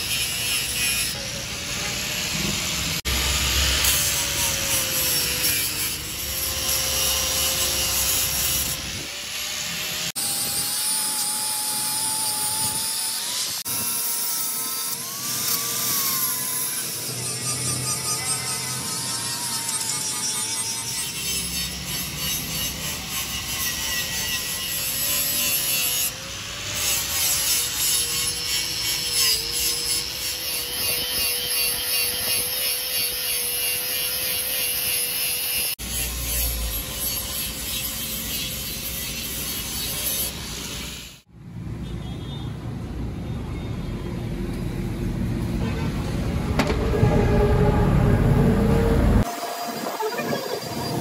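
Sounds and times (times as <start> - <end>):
angle grinder motor whine: 46.3 - 51.0.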